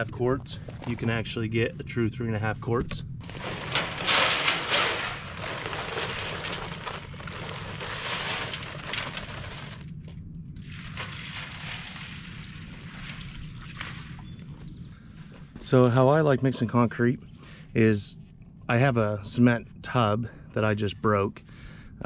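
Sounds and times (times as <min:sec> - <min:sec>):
dry concrete mix pouring: 0:03.2 - 0:09.9, 0:10.6 - 0:14.2
water pouring from a bucket: 0:03.2 - 0:09.9, 0:10.6 - 0:14.2.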